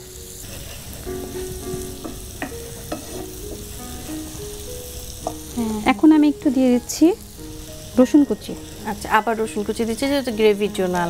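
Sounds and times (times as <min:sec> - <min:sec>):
onion sizzling in a frying pan: 0:00.0 - 0:11.0
wooden spatula scraping a pan: 0:00.4 - 0:04.4
spatula tapping a pan: 0:01.4 - 0:03.8, 0:05.2 - 0:05.5.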